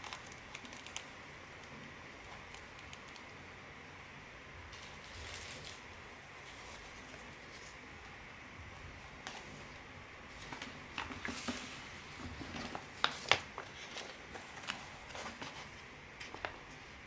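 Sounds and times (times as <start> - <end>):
paper packets rustling: 10.3 - 17.0.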